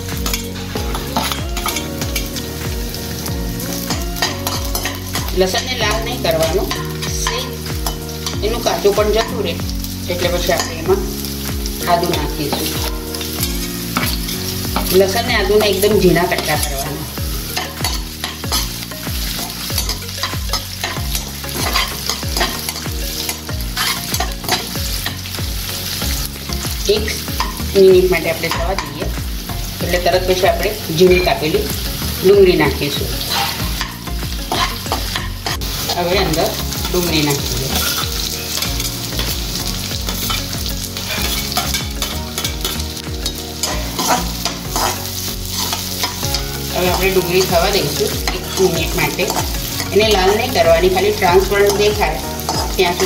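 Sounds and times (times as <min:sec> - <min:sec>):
frying in hot oil sizzle: 0:00.0 - 0:53.0
metal spatula scraping pan: 0:00.1 - 0:02.4, 0:19.4 - 0:25.2, 0:33.2 - 0:53.0.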